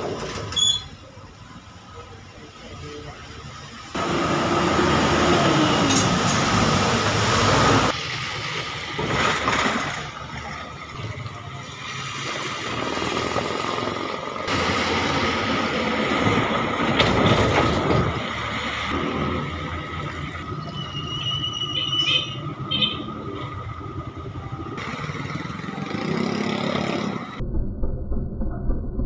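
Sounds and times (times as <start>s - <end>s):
vehicles driving through water: 3.4s - 21.4s
truck engine passing: 3.9s - 27.4s.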